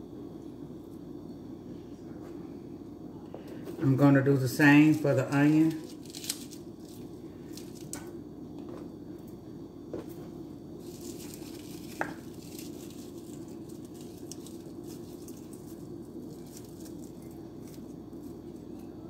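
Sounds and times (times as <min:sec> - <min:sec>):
steady low hum: 0:00.0 - 0:19.0
onion slices rustling and pattering: 0:04.9 - 0:08.1, 0:09.9 - 0:18.9.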